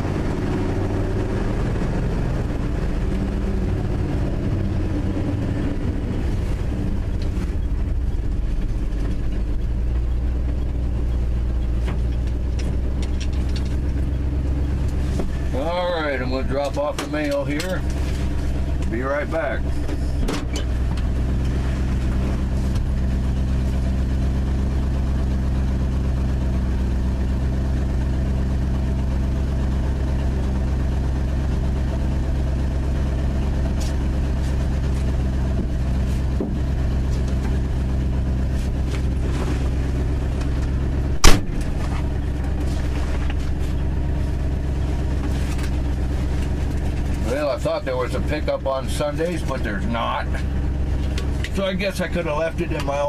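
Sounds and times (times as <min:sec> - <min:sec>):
pickup engine idling: 0:00.0 - 0:53.0
loud sharp thump: 0:41.2 - 0:41.7.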